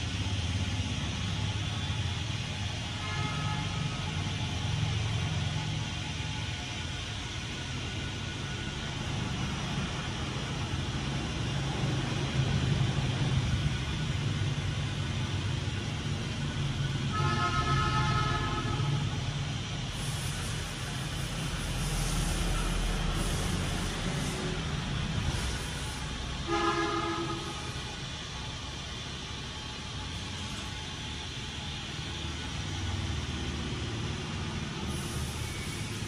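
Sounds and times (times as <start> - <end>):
car horn: 3.0 - 4.1, 17.1 - 19.1, 26.5 - 27.8.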